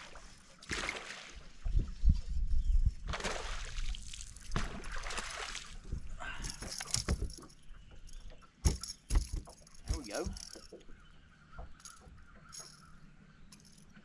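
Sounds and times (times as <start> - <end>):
fish splashing in water: 0.6 - 1.4, 3.1 - 5.8
fishing tackle jangling: 6.4 - 10.8, 11.8 - 12.9, 13.5 - 14.0
dull thumps of fish landing: 6.5 - 7.5, 8.6 - 10.6.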